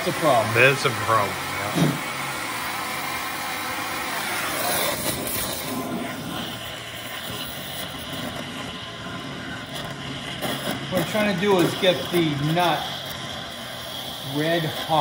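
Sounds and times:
torch flame hissing: 0:00.0 - 0:15.0.

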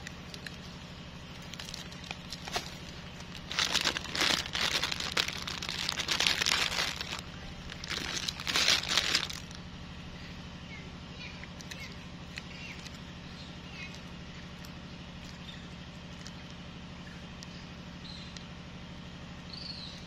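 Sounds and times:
steady low hum: 0:00.0 - 0:20.0
plastic wrapper crinkling: 0:01.4 - 0:09.6.

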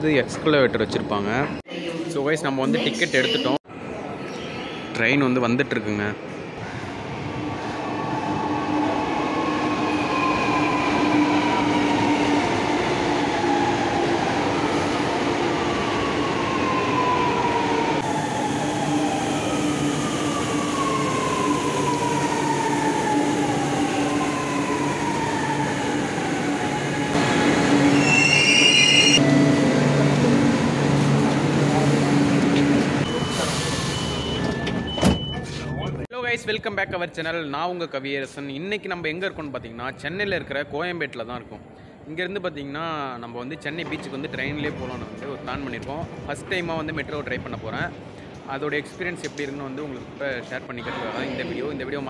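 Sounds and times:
brief high squeal: 0:28.0 - 0:29.2.

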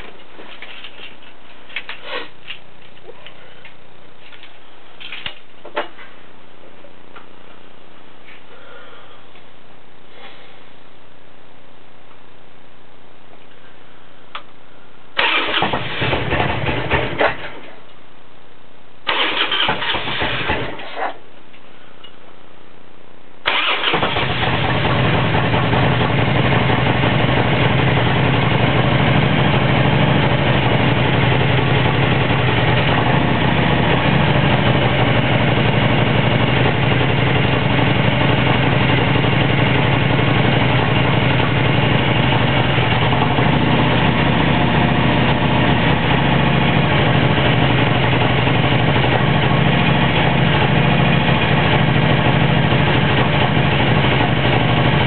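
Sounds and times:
motorcycle engine starting and idling: 0:15.2 - 0:17.7, 0:19.0 - 0:21.0, 0:23.5 - 0:55.0.

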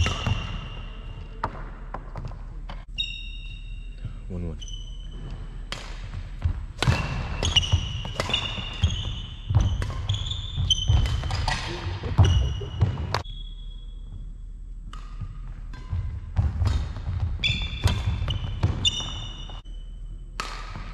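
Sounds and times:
court shoes squeaking: 0:00.0 - 0:20.9
racket striking shuttlecock: 0:06.8 - 0:13.3, 0:14.8 - 0:19.3, 0:20.4 - 0:20.9
footsteps thudding on wooden court: 0:15.2 - 0:19.5.

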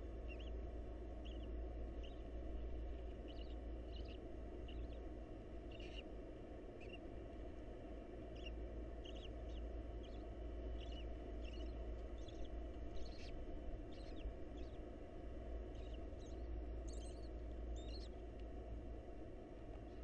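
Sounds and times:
low hum: 0:00.0 - 0:20.0
owls squeaking: 0:05.7 - 0:06.0, 0:10.8 - 0:14.8, 0:15.7 - 0:18.1.

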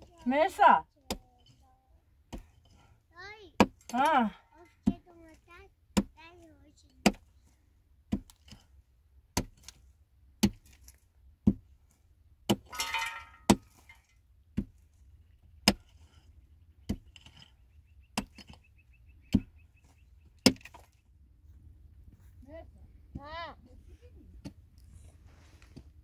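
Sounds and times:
hand tool striking hard material: 0:00.0 - 0:01.6, 0:02.3 - 0:02.8, 0:03.6 - 0:04.2, 0:06.0 - 0:06.2, 0:06.8 - 0:07.3, 0:09.3 - 0:09.8, 0:10.4 - 0:11.7, 0:12.4 - 0:14.8, 0:15.6 - 0:16.2, 0:20.4 - 0:21.0.

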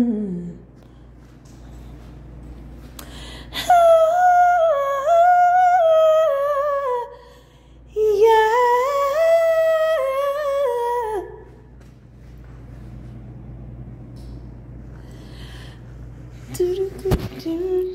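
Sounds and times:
woman humming a tune: 0:00.0 - 0:00.7
breath: 0:03.0 - 0:03.6, 0:07.1 - 0:07.9, 0:14.9 - 0:16.0.

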